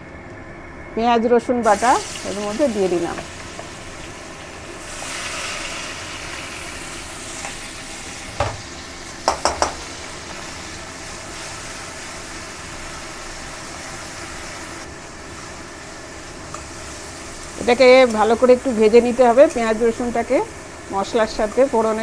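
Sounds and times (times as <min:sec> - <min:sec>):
onion paste sizzling in oil: 0:01.6 - 0:22.0
metal knocks: 0:09.3 - 0:09.8.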